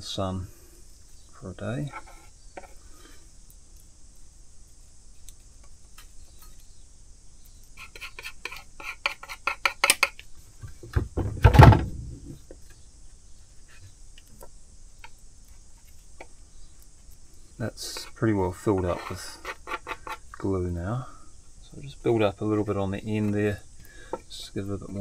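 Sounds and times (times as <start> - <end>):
hand tools clicking on wood: 7.9 - 10.2
thump: 10.8 - 12.4.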